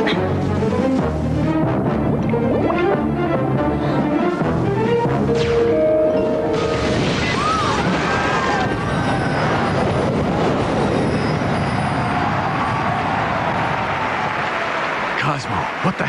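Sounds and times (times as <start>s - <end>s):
cartoon explosion rumble: 6.6s - 12.6s.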